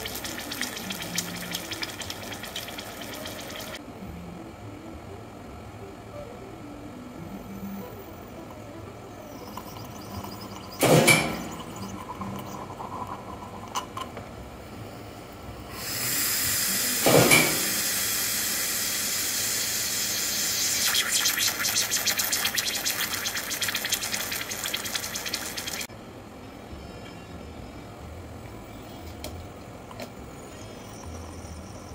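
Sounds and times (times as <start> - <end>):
hot water hissing through machine: 0.0 - 3.8, 15.6 - 25.9.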